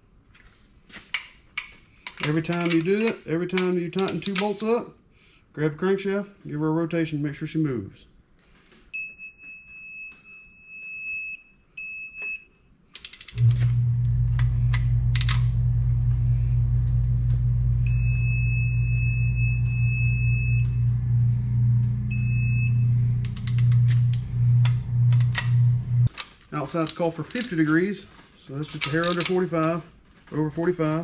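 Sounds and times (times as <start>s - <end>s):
low machine hum: 13.4s - 26.1s
torque wrench beeping: 17.8s - 21.0s, 22.0s - 25.7s.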